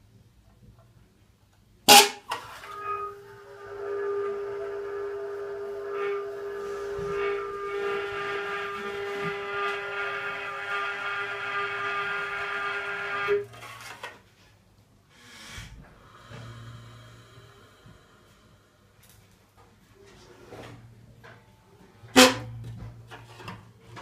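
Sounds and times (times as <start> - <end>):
drone of stacked tones: 2.6 - 13.4.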